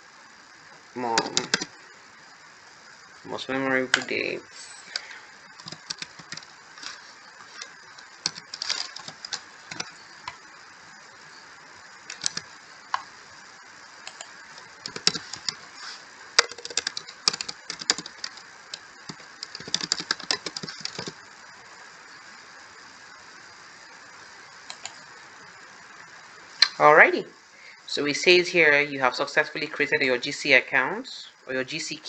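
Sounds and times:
computer keyboard typing: 1.2s - 1.7s, 5.6s - 7.0s, 7.6s - 10.0s, 12.1s - 12.5s, 14.1s - 15.6s, 16.4s - 21.2s.

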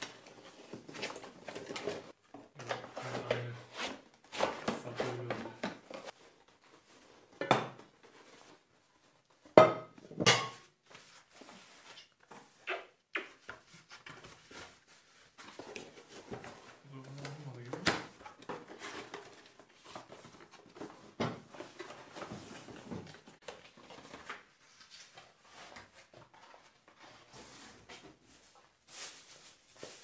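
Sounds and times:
cardboard packaging rustling: 0.0s - 9.4s, 13.7s - 30.0s
cookware clanking down: 9.6s - 10.6s.

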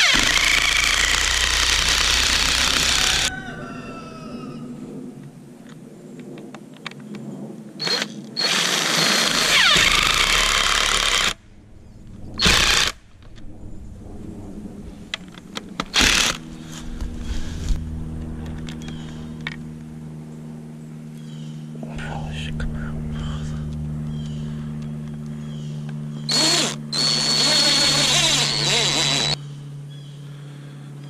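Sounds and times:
cordless drill driving screws: 0.0s - 3.3s, 7.8s - 11.4s, 26.3s - 29.4s.

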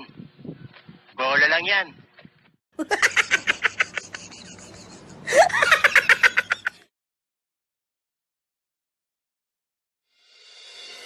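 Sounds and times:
rapid pulsing laughter: 2.8s - 6.9s.

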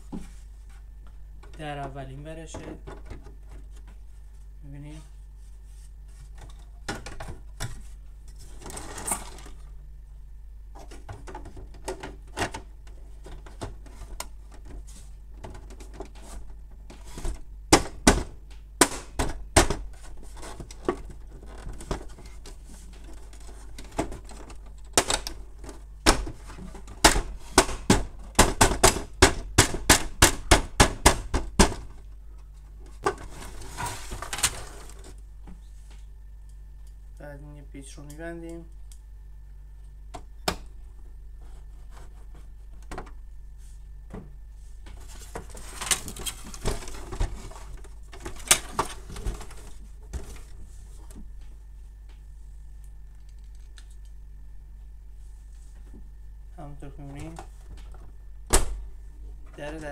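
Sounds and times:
plastic panel scraping: 6.2s - 9.6s.

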